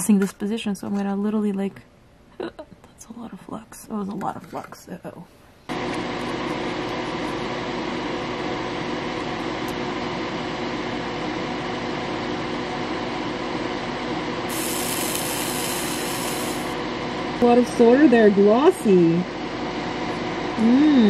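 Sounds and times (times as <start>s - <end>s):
mechanical fan whir: 2.9s - 21.0s
bright hiss: 14.5s - 16.8s.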